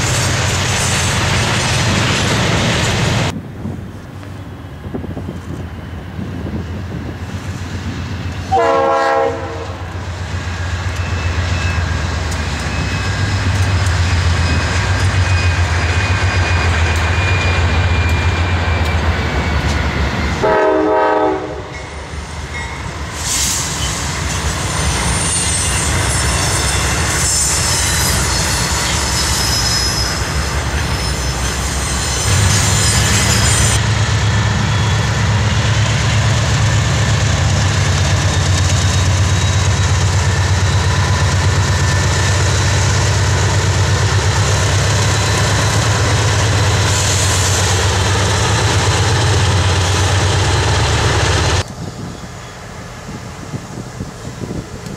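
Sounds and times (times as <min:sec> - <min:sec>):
steel wheels squealing on rail: 0:00.0 - 0:03.3, 0:04.4 - 0:54.9
diesel locomotives rumbling past: 0:00.0 - 0:54.9
locomotive horn blasts: 0:08.5 - 0:09.9, 0:20.4 - 0:21.8.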